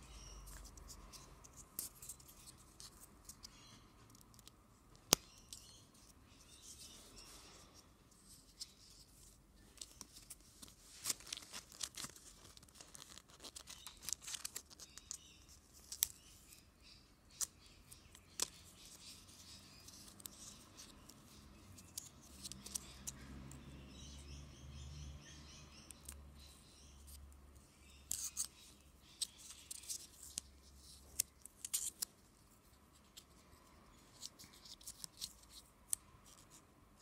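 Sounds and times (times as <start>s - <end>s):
plastic wrapping crinkling: 9.8s - 15.2s.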